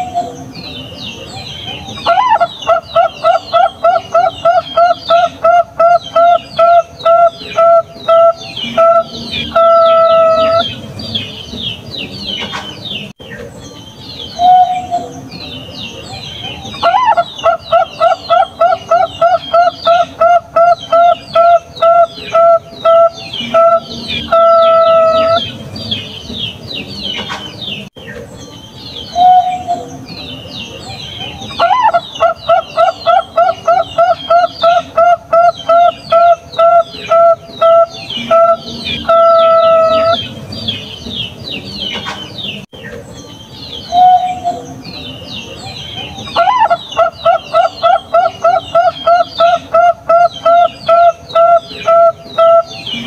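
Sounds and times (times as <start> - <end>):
birds chirping: 0.0 - 53.0
dove cooing: 16.7 - 25.6, 31.4 - 40.9, 46.0 - 53.0.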